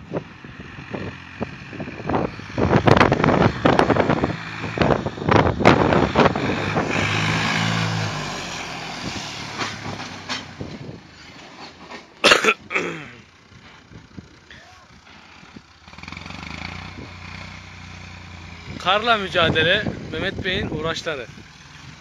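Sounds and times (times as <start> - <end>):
tractor diesel engine working hard: 8.5 - 22.0.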